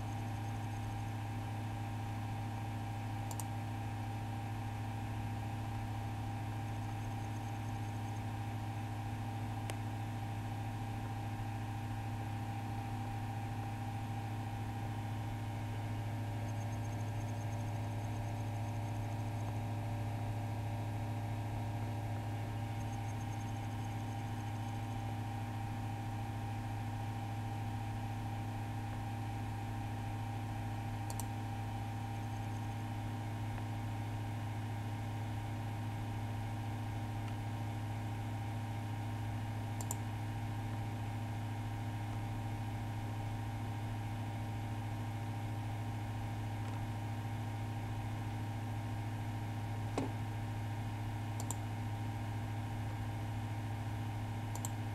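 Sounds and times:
low electrical hum: 0.0 - 54.9
computer mouse clicks: 3.3 - 3.5, 31.1 - 31.3, 39.8 - 40.0, 51.4 - 51.6, 54.5 - 54.8.

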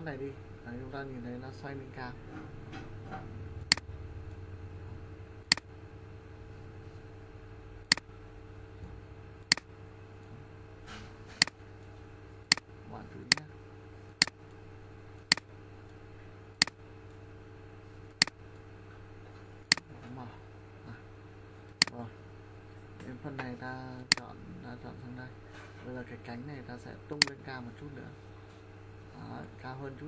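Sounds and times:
low electrical hum: 0.0 - 30.0
computer mouse clicking: 3.7 - 3.9, 5.5 - 5.7, 7.9 - 8.1, 13.3 - 13.5, 24.1 - 24.3.

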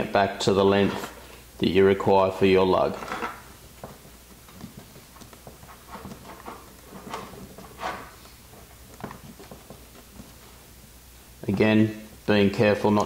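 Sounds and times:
knife scraping cable insulation: 4.6 - 8.4.

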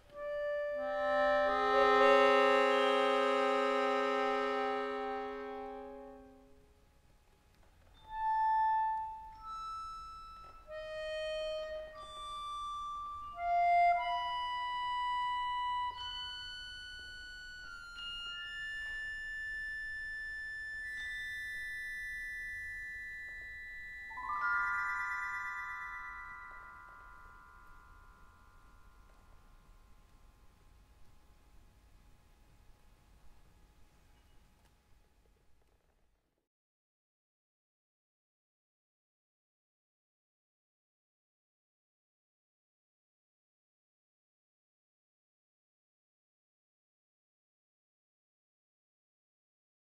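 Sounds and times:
accordion chords: 0.1 - 6.6, 8.1 - 22.0.

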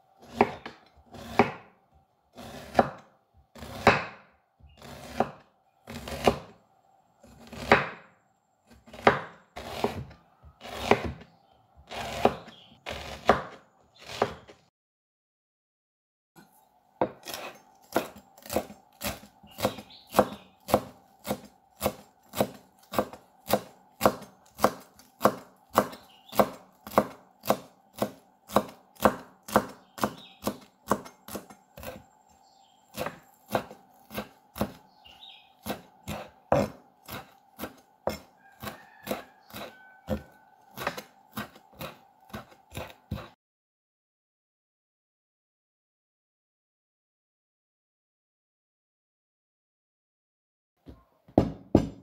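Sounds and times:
knife chopping on bamboo board: 0.2 - 1.7, 2.4 - 6.5, 7.2 - 8.0, 8.7 - 11.3, 11.9 - 14.6, 17.0 - 32.0, 32.9 - 34.9, 35.6 - 43.4, 50.9 - 52.0.

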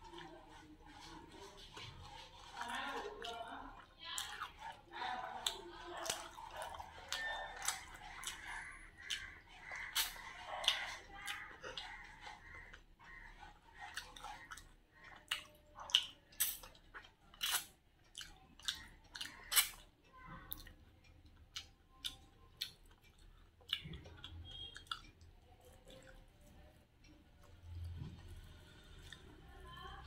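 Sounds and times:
wet chewing and lip-smacking: 0.0 - 30.0.

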